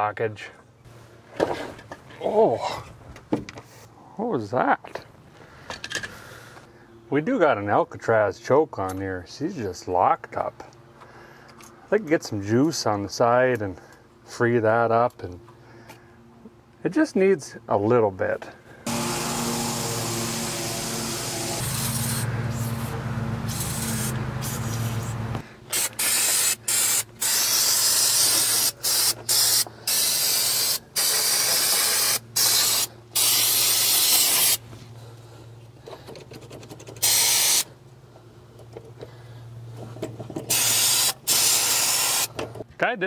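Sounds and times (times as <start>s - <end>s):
aerosol can spraying: 18.9s - 34.6s, 37.0s - 37.7s, 40.5s - 42.3s.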